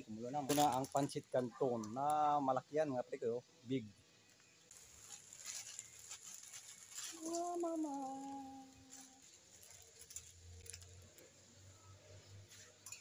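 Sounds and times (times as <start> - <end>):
plastic packet crinkling: 0.5 - 1.2, 4.7 - 11.2
person calling out drawn-out word: 7.2 - 8.7.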